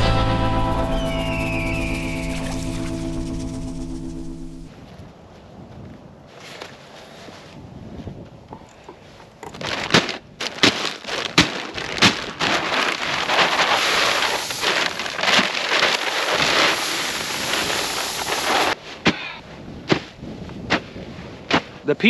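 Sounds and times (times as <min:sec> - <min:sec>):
corn kernels pouring onto pile: 0:12.0 - 0:18.8.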